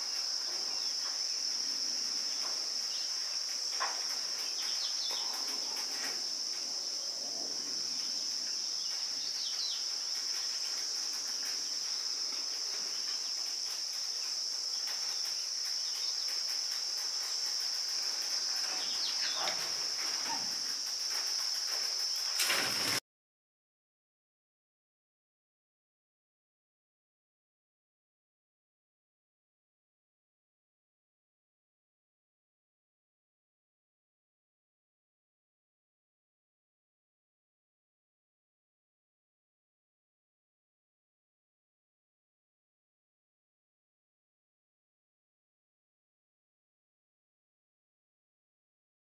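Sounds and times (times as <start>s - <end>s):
bird chirps: 0.0s - 6.1s, 7.9s - 16.4s, 18.6s - 20.6s
high-pitched insect chorus: 0.0s - 23.0s.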